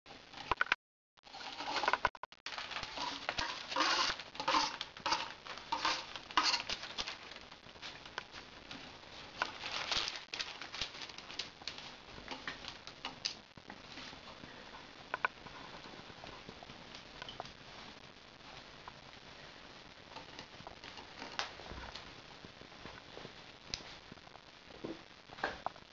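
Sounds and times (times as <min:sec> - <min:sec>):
newspaper crinkling: 0:01.2 - 0:13.0.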